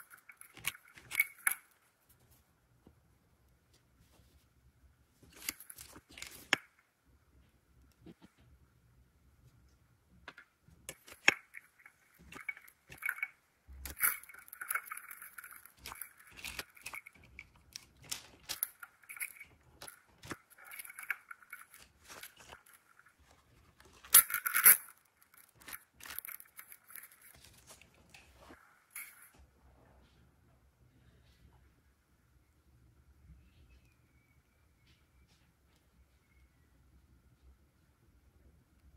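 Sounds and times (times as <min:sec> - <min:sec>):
plastic pieces clicking: 0:00.0 - 0:01.8, 0:05.3 - 0:06.8, 0:10.3 - 0:29.3.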